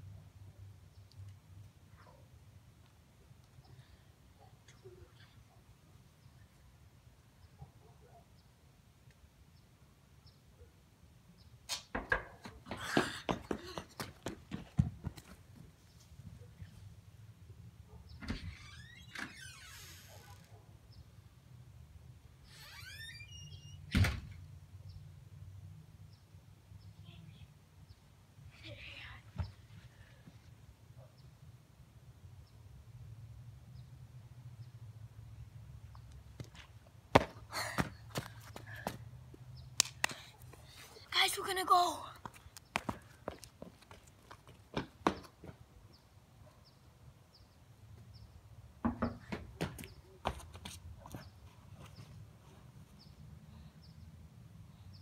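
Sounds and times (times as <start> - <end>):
sneaker footsteps on concrete: 11.9 - 15.6, 36.4 - 39.4, 42.2 - 45.6
door squeaking: 18.2 - 20.5, 22.5 - 24.4.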